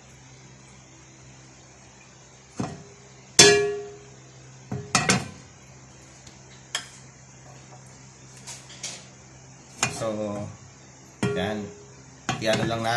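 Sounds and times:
metal frying pan clanking: 3.4s - 4.0s, 11.2s - 11.6s.

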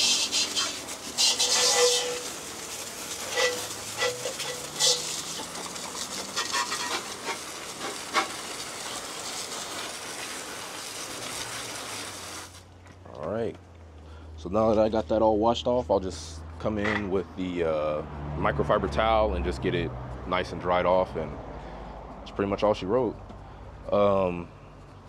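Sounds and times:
hose water spraying: 0.0s - 12.7s
water splattering on motorcycle: 0.0s - 12.7s.

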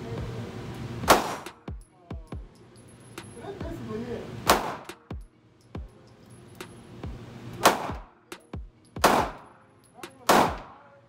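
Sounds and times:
loud handgun shots: 1.0s - 1.6s, 4.4s - 5.0s, 7.6s - 8.1s, 9.0s - 9.5s, 10.2s - 10.8s
faint distant gunshots: 1.1s - 1.6s, 4.5s - 5.0s, 7.6s - 8.2s, 9.0s - 9.4s, 10.3s - 10.8s.

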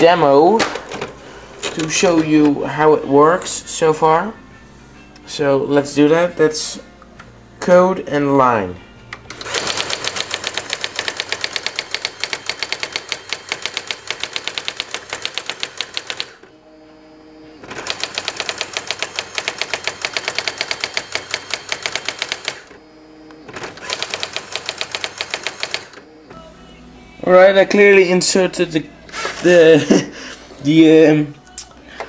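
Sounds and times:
typewriter hammer strikes: 9.3s - 16.4s, 17.8s - 22.7s, 23.6s - 26.0s.

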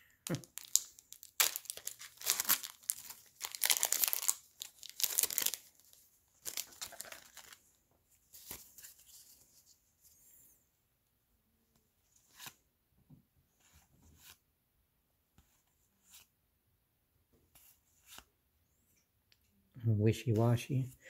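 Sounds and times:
foil wrapper crinkling: 0.5s - 5.7s, 6.4s - 7.6s.

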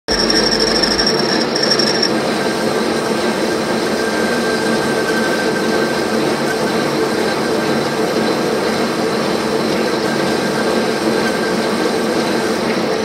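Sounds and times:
thin high whine: 0.1s - 2.3s
lathe cutting steel: 0.1s - 5.6s.

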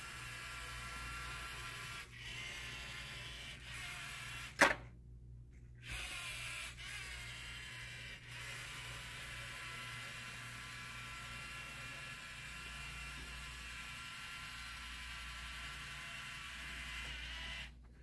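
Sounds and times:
robot motors whining: 9.2s - 17.8s.

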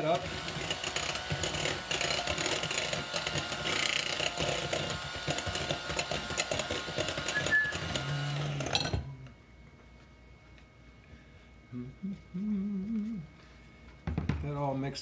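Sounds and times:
electric hand mixer beating batter: 0.0s - 9.0s.

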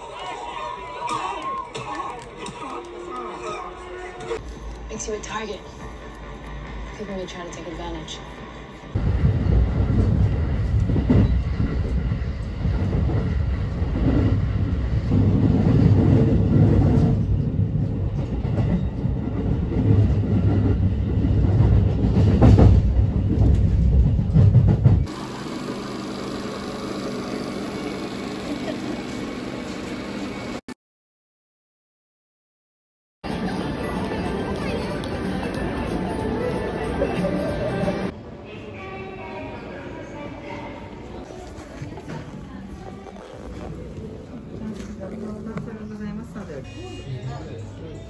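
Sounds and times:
train wheels rumbling on rails: 4.9s - 25.2s.

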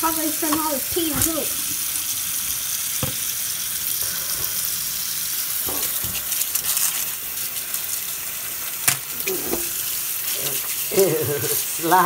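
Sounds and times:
tap water running: 0.0s - 12.0s.

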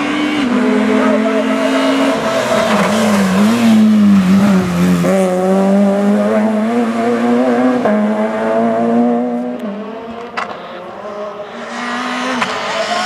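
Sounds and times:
rally car engine at high revs: 0.0s - 13.0s.

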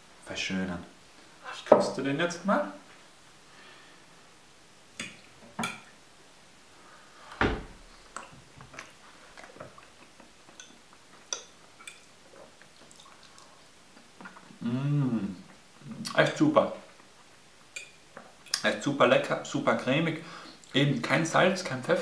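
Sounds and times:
quiet chewing: 8.0s - 14.6s.

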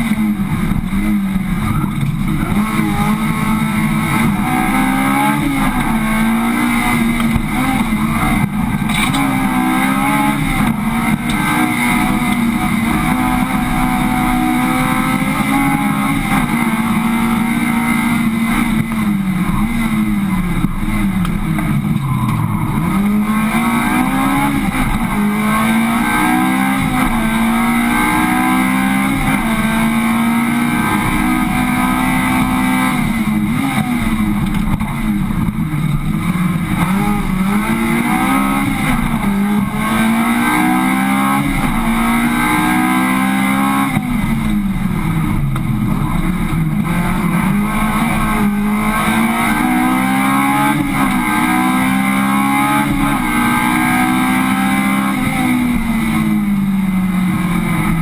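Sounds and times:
car engine at high revs: 0.0s - 58.0s.

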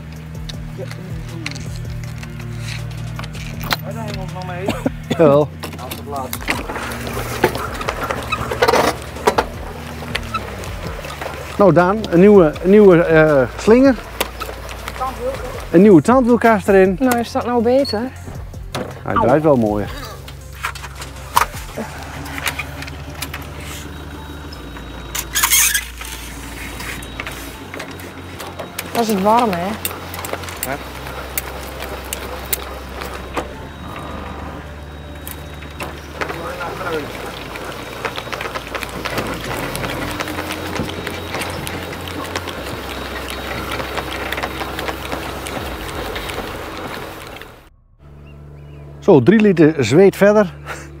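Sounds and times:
engine running: 0.0s - 51.0s
steady low hum: 18.2s - 51.0s
short loud squeal: 25.3s - 27.1s.

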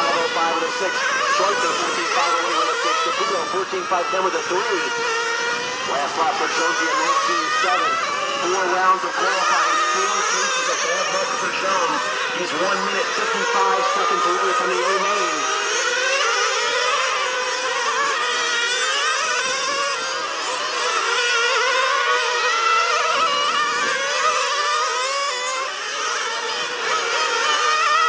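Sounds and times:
rc car engines revving: 0.0s - 28.0s.

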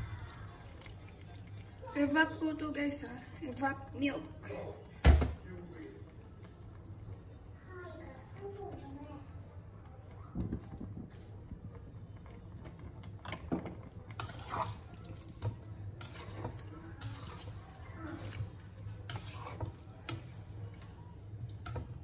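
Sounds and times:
liquid sloshing in pan: 10.7s - 22.0s.

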